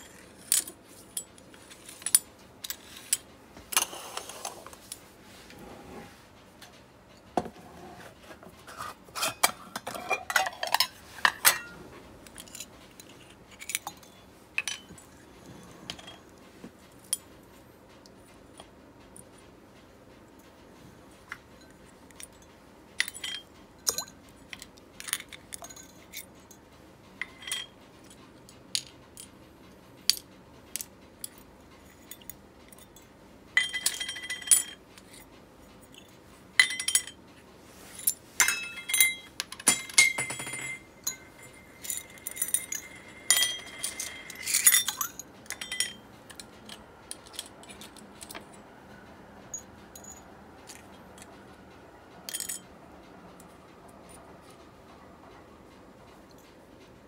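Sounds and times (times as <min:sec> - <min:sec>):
fishing reel parts clinking: 0:38.0 - 0:48.5
metallic ring: 0:38.4 - 0:46.1.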